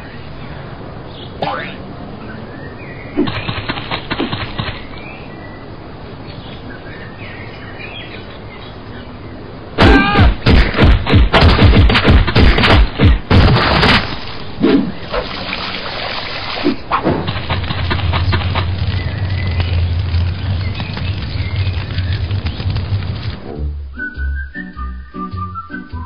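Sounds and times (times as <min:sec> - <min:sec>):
faint birdsong: 0:00.0 - 0:10.2, 0:17.5 - 0:26.0
brief cry: 0:09.8 - 0:10.4
heavy wooden blows on a body: 0:09.8 - 0:14.0.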